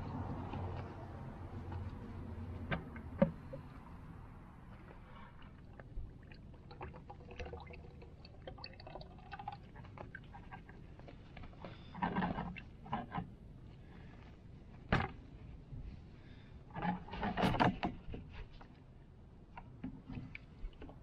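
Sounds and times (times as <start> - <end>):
oil pouring into plastic bucket: 5.7 - 11.1.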